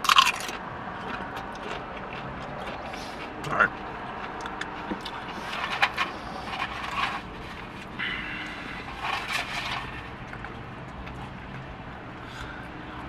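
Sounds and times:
steady low hum: 0:00.0 - 0:13.0
food bowl scraping and rustling: 0:04.8 - 0:10.6.

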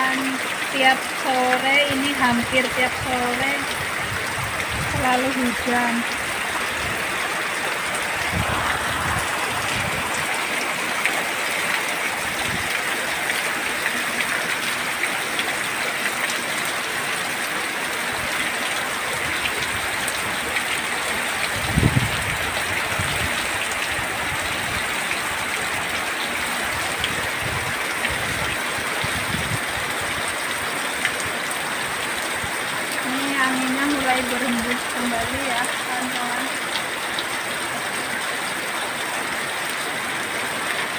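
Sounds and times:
heavy rain pouring: 0:00.0 - 0:40.9
wind gusts buffeting microphone: 0:01.8 - 0:06.0, 0:08.0 - 0:10.4, 0:21.5 - 0:24.9, 0:26.8 - 0:30.0.

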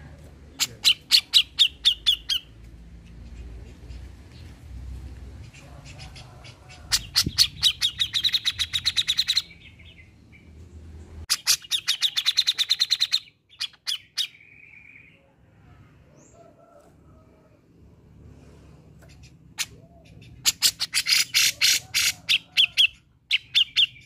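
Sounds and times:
bird calling sharp repeated notes: 0:00.6 - 0:02.6, 0:11.3 - 0:15.0.

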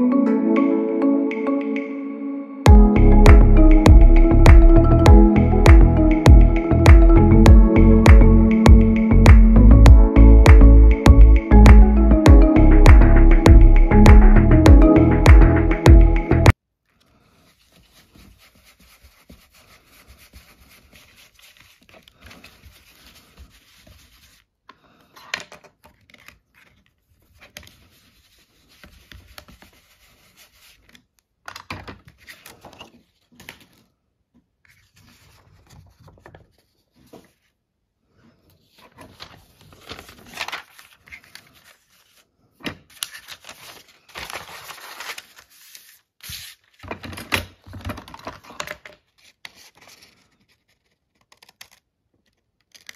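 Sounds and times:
paper rubbing and scraping: 0:17.3 - 0:24.5, 0:25.8 - 0:31.0, 0:34.6 - 0:37.6, 0:38.6 - 0:42.3, 0:42.9 - 0:46.8.

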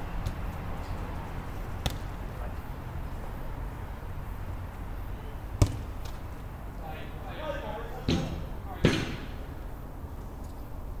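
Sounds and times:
football being kicked: 0:01.8 - 0:02.1, 0:05.6 - 0:06.2.

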